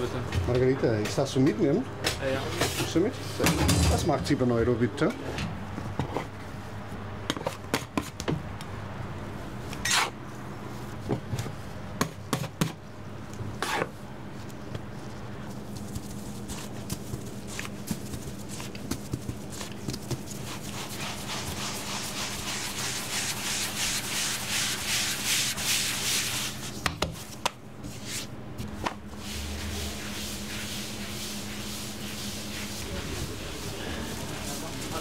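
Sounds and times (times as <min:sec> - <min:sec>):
steady low hum: 0:03.0 - 0:35.0
rhythmic rubbing strokes: 0:17.9 - 0:26.8, 0:29.2 - 0:35.0.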